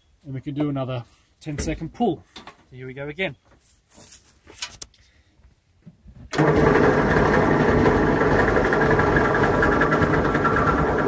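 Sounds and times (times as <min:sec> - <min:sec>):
electric winch running: 0:06.3 - 0:11.0.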